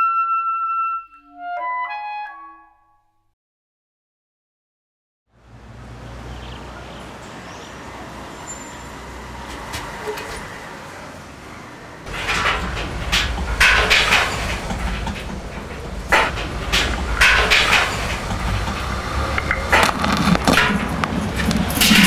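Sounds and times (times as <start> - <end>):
clattering scraping strokes: 12.1 - 22.0
mechanical rumble: 12.1 - 22.0.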